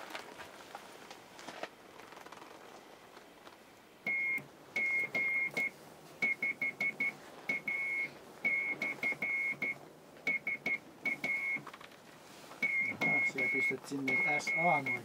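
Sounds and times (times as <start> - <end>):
morse code tone: 4.1 - 11.6, 12.6 - 15.0.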